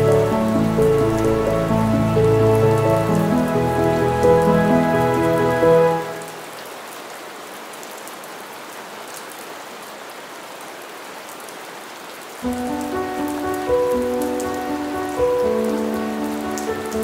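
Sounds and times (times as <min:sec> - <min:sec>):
background music: 0:00.0 - 0:06.4, 0:12.4 - 0:17.0.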